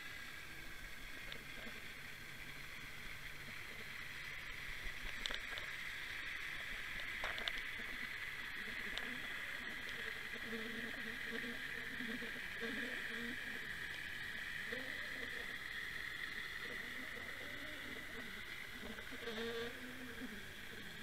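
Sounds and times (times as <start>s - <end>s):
underwater water hiss: 0.0s - 21.0s
faint clicks: 4.5s - 11.4s.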